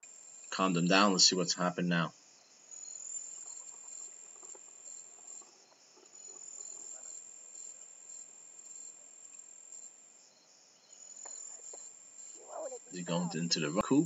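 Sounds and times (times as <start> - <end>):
high-pitched insect trill: 0.0 - 1.4, 2.0 - 14.0.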